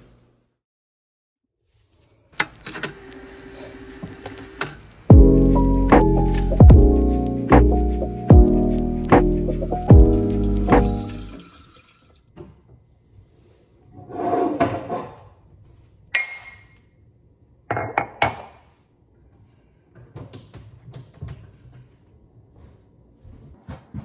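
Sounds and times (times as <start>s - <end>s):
ceramic mugs clinking: 16.1s - 16.8s.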